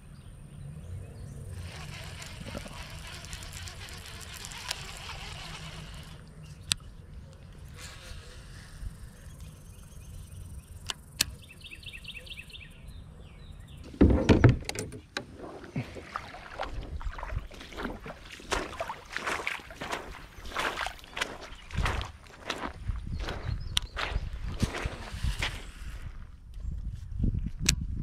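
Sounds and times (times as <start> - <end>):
footsteps crunching on gravel: 16.6 - 26.3.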